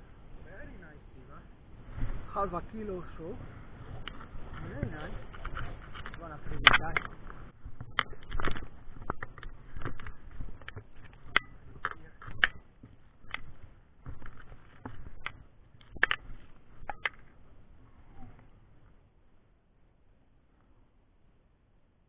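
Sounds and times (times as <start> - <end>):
footsteps over rocks and shells: 3.0 - 17.7.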